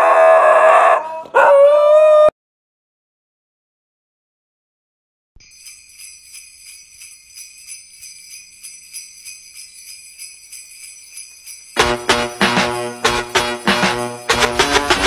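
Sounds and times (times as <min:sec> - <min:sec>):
jingle bells shaking: 0:05.4 - 0:15.0.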